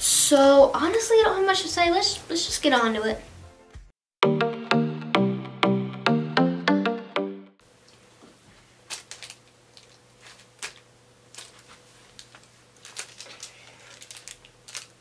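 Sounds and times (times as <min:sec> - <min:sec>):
low room hum: 0:07.6 - 0:15.0.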